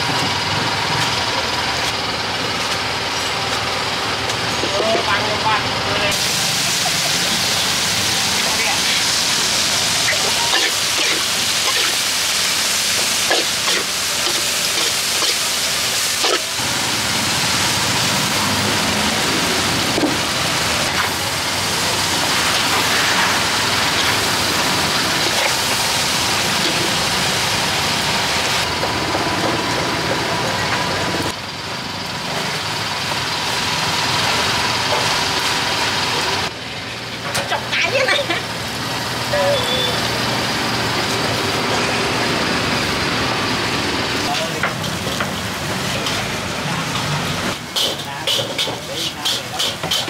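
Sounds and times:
noodles sizzling in a wok: 6.1 - 28.8, 37.7 - 50.0
utensils tapping a wok: 47.6 - 50.0.

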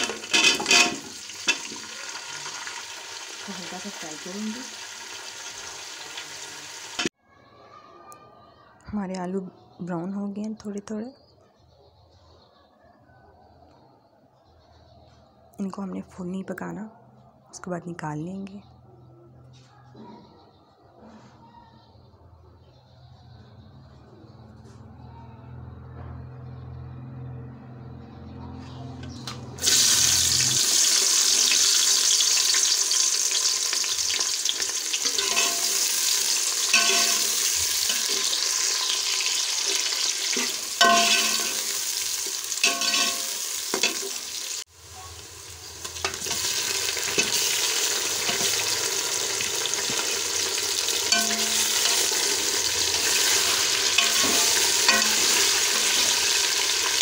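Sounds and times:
metal spoon scraping a pot: 0.0 - 1.8, 34.4 - 42.0, 42.6 - 44.2, 46.0 - 49.0, 51.0 - 56.4
food sizzling in a pot: 0.0 - 7.2, 29.6 - 57.0.

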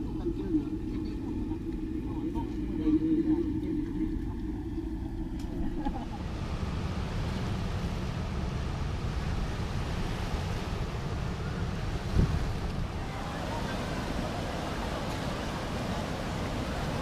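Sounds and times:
wind buffeting microphone: 0.0 - 17.0
water rushing from spillway: 6.1 - 17.0.

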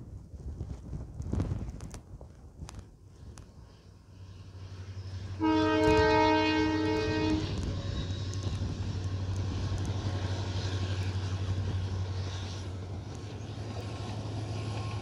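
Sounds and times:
train rumble: 0.0 - 15.0
locomotive drone: 1.4 - 15.0
train horn: 5.0 - 8.6.

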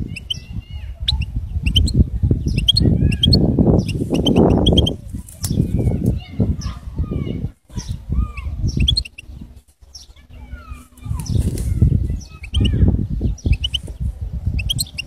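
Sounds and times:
goldfinch twittering song: 0.0 - 6.8, 7.7 - 10.5, 14.6 - 15.0.

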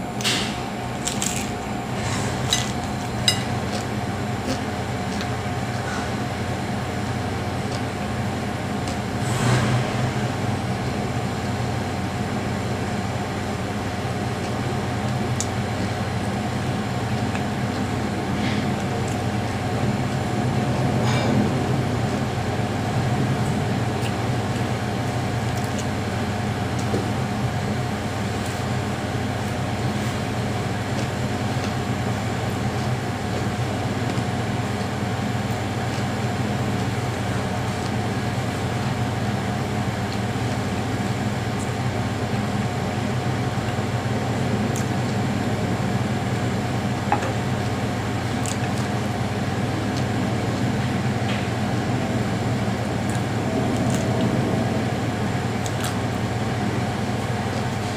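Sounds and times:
electric fan humming: 0.0 - 57.9
soft eating clicks: 2.5 - 9.1, 14.1 - 21.4, 23.4 - 28.8, 29.4 - 46.4, 47.0 - 51.6, 53.0 - 54.4.

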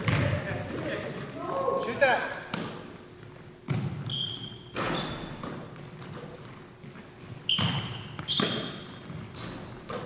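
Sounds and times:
basketball bouncing on hardwood: 0.0 - 0.4, 3.7 - 4.2, 6.8 - 10.0
sneaker squeaks: 0.0 - 3.0, 3.7 - 10.0.

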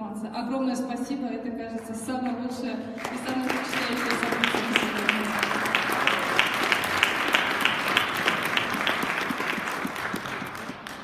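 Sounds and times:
audience applauding: 3.0 - 11.0
close hands clapping steadily: 3.0 - 11.0.

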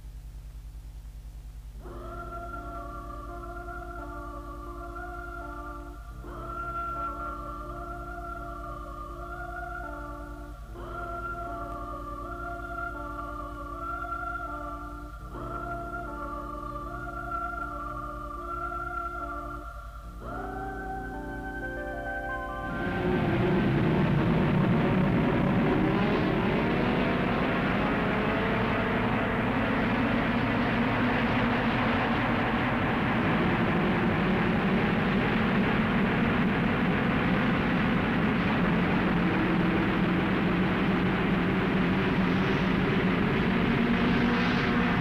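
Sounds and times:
racing car engines roaring: 22.7 - 45.0.

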